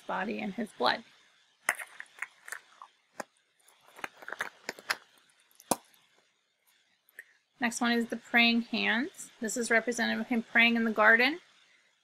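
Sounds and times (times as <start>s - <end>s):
plastic eggs clicking and rattling: 1.7s - 6.0s.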